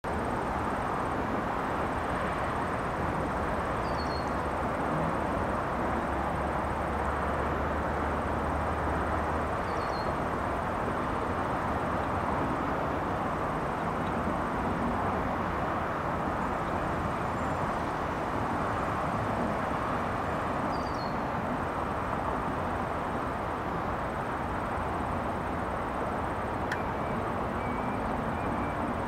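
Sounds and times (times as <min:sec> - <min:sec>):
highway traffic hum: 0:00.0 - 0:29.0
faint bird chirp: 0:03.8 - 0:04.5, 0:09.6 - 0:10.2, 0:20.7 - 0:21.2, 0:26.8 - 0:28.9.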